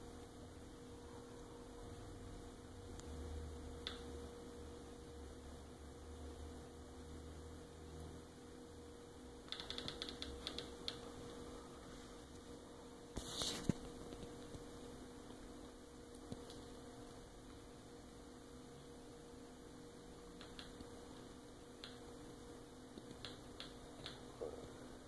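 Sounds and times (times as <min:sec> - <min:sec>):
faint steady hum: 0:00.0 - 0:25.0
soft clicks: 0:20.4 - 0:22.0.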